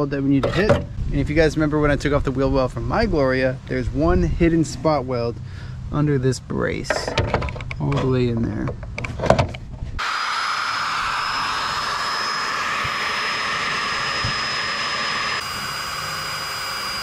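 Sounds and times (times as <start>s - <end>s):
electric drill whining: 10.0s - 17.0s.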